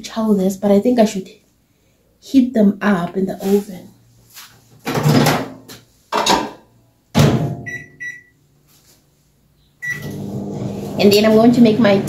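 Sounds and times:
high keypad beeps: 7.6s - 8.3s, 9.8s - 10.1s.

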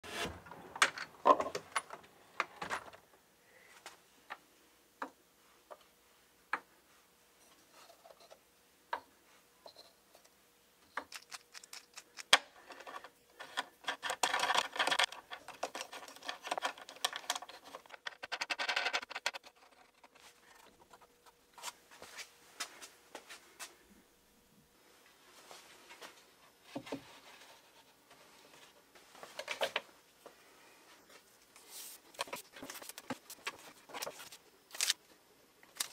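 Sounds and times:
drawer sliding open: 0.0s - 1.8s
wooden pieces clacking and knocking: 0.7s - 3.0s, 11.0s - 21.0s.

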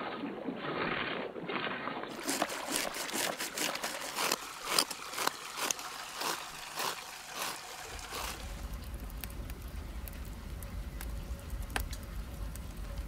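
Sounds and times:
knife scraping fish scales: 2.1s - 8.5s
water running into a basin: 2.1s - 9.0s.

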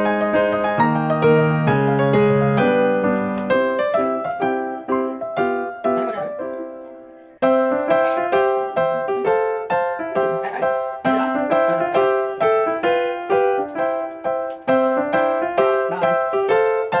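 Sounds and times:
simple keyboard melody: 0.0s - 17.0s.

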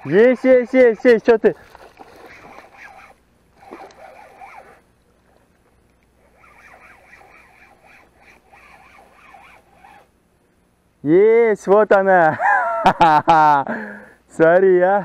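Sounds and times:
fishing reel whirring: 0.0s - 4.9s, 6.0s - 10.2s.

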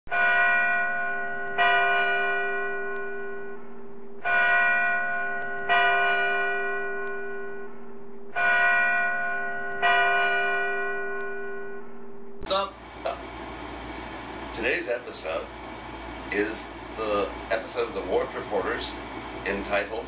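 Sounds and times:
bell chimes ringing: 0.1s - 12.0s
low held tone: 0.1s - 12.5s.

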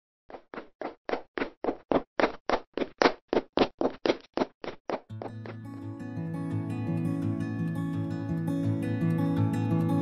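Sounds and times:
footsteps thudding down stairs: 0.3s - 5.6s
guitar music: 5.1s - 10.0s.

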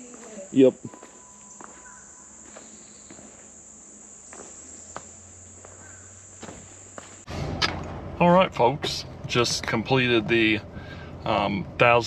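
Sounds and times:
insect chorus buzzing: 0.0s - 7.6s
faint footsteps: 0.0s - 11.9s.

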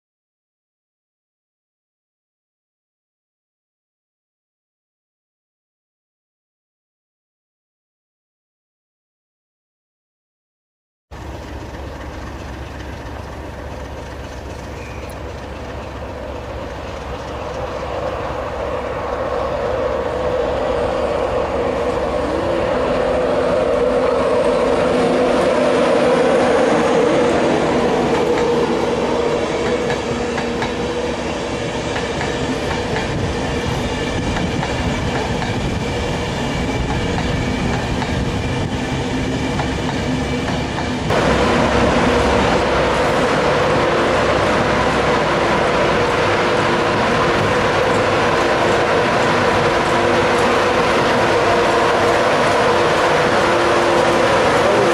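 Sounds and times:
electric train passing: 11.1s - 54.9s.

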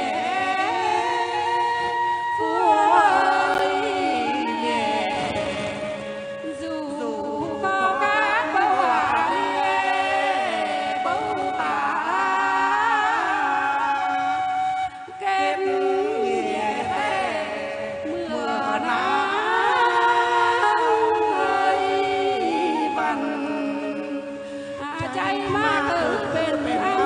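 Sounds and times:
woman singing into microphone: 0.0s - 27.0s
man singing into microphone: 25.0s - 27.0s.

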